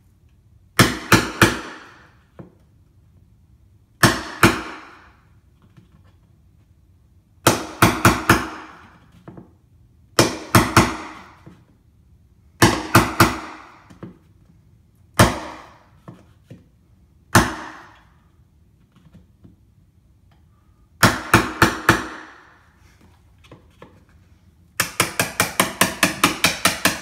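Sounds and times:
hammer striking chisel into wood: 0:00.8 - 0:02.2, 0:04.0 - 0:05.2, 0:07.4 - 0:09.0, 0:10.2 - 0:11.5, 0:12.6 - 0:14.1, 0:15.1 - 0:16.1, 0:17.3 - 0:18.1, 0:21.0 - 0:22.6, 0:24.8 - 0:27.0.

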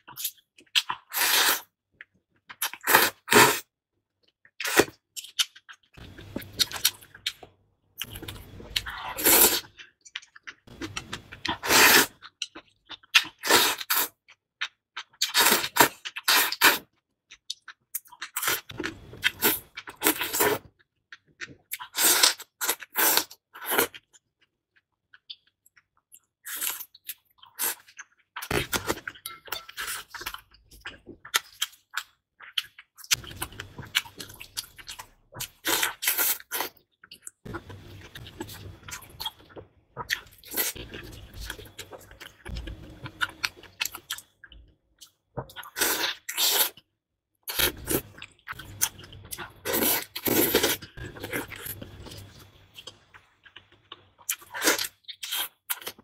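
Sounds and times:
slurping noodles: 0:01.1 - 0:01.7, 0:08.0 - 0:09.7, 0:10.8 - 0:12.2, 0:45.6 - 0:46.8, 0:49.6 - 0:52.2.

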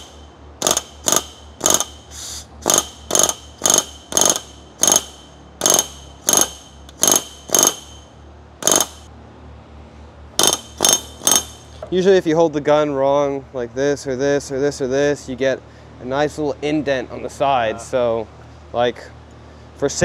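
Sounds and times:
rivet gun hammering sheet metal: 0:00.0 - 0:09.1, 0:10.4 - 0:11.7.

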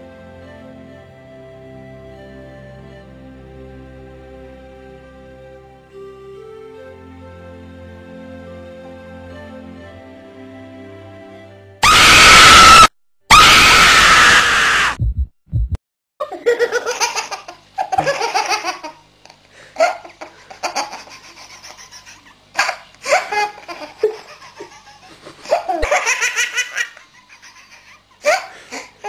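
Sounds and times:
soft music: 0:00.0 - 0:11.8
loud scream: 0:11.8 - 0:15.0
low thuds: 0:15.0 - 0:15.8.

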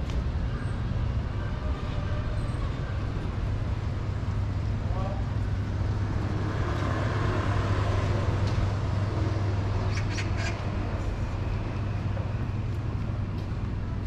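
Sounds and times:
traffic hum: 0:00.0 - 0:14.0.

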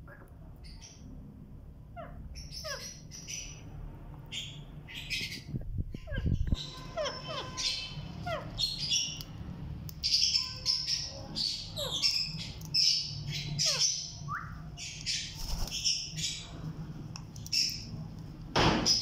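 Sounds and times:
parakeets squawking and chirping: 0:00.0 - 0:19.0.

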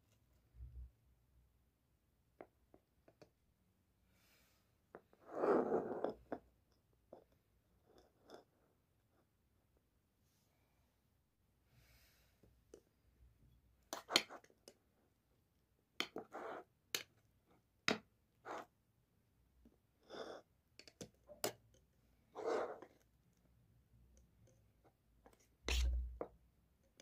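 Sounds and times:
fork scraping ceramic bowl: 0:25.4 - 0:26.2.

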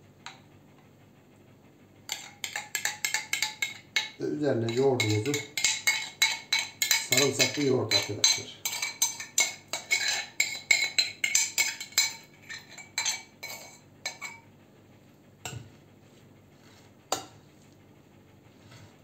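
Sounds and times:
spoon scraping ceramic bowl: 0:02.1 - 0:14.4.

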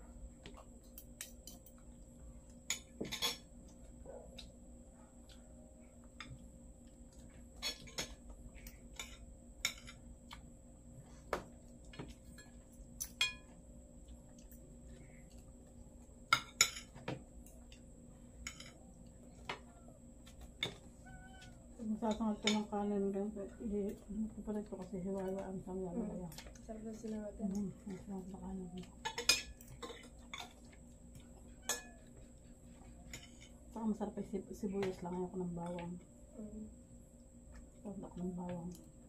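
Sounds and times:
cutlery clinking on plates: 0:02.7 - 0:03.5, 0:12.0 - 0:13.5, 0:29.0 - 0:30.6, 0:31.6 - 0:32.1.

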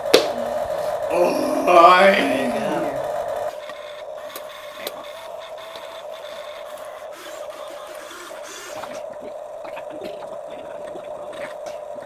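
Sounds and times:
electric gear motors whining: 0:00.3 - 0:09.2.

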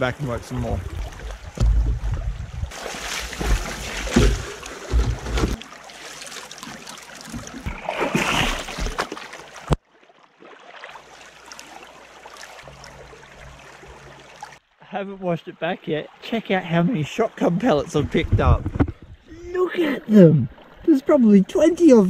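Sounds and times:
water pouring and splashing: 0:00.0 - 0:14.6
creek flowing: 0:00.0 - 0:22.0
heavy low bumps: 0:01.2 - 0:02.7, 0:17.9 - 0:19.4.

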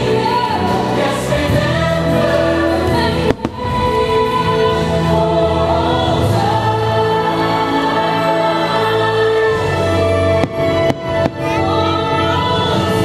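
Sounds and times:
choir singing over orchestral music: 0:00.0 - 0:13.0.

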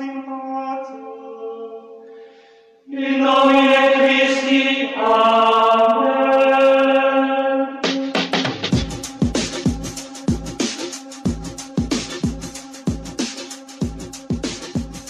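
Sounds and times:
choir-like chords: 0:02.9 - 0:09.6.

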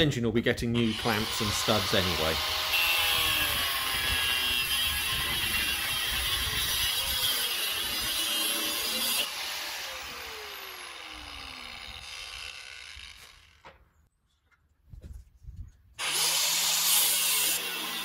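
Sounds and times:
angle grinder cutting steel: 0:00.8 - 0:13.6, 0:16.0 - 0:18.0
grinder disc winding down: 0:08.7 - 0:13.6.

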